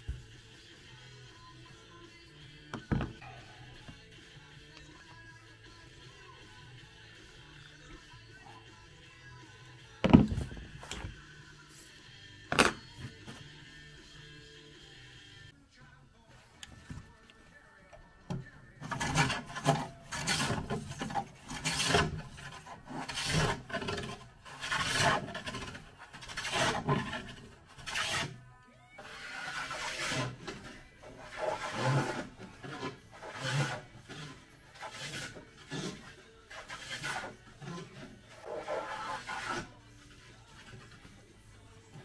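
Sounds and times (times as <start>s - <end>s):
hand tool rubbing on wood: 18.8s - 28.4s, 29.0s - 42.0s.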